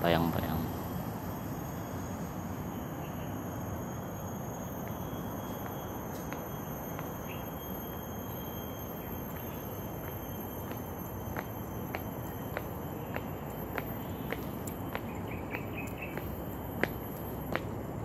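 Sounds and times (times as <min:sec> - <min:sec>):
high-pitched insect chirring: 0:00.0 - 0:18.0
faint footsteps: 0:04.8 - 0:18.0.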